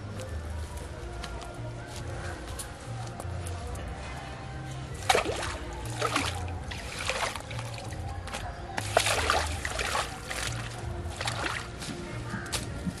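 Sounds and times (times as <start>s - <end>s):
background music with low bass: 0.0s - 13.0s
fish splashing in shallow water: 5.0s - 11.8s.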